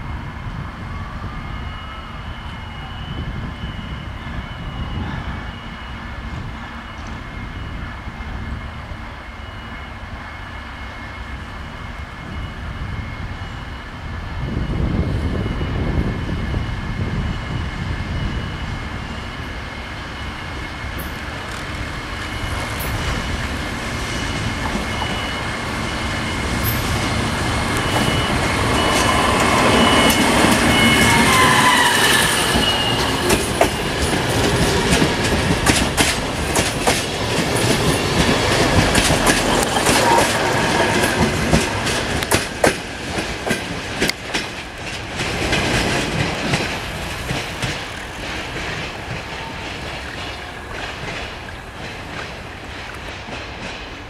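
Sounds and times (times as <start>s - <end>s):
diesel train rumble: 0.0s - 54.0s
train whine: 0.0s - 54.0s
wheels clicking over rail joints: 32.5s - 54.0s.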